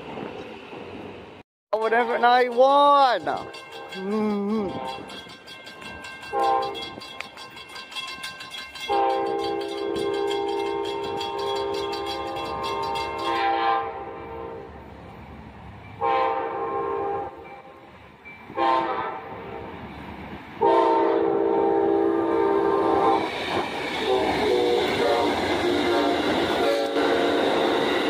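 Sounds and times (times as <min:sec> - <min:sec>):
crossing bell ringing: 0:01.8 - 0:16.2, 0:17.3 - 0:18.6
locomotive air horn blasts: 0:04.6 - 0:05.1, 0:06.3 - 0:06.8, 0:08.9 - 0:14.7, 0:16.0 - 0:17.4, 0:18.6 - 0:19.3, 0:20.6 - 0:23.3, 0:24.1 - 0:28.0
train wheels clattering over rails: 0:04.7 - 0:13.6, 0:22.5 - 0:28.0.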